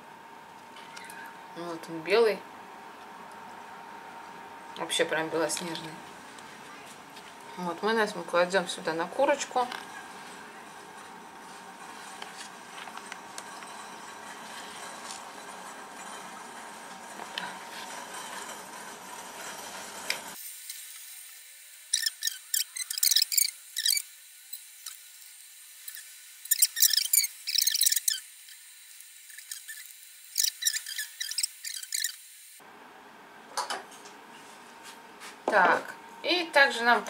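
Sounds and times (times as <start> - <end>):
squelchy brush smearing: 29.3 - 32.2.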